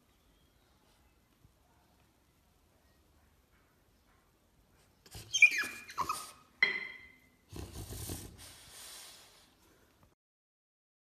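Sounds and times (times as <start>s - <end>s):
dog whining high cries: 5.2s - 6.5s.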